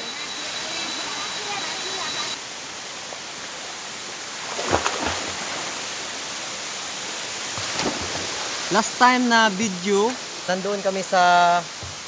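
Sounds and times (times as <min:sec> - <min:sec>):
waterfall rushing: 0:05.4 - 0:12.0.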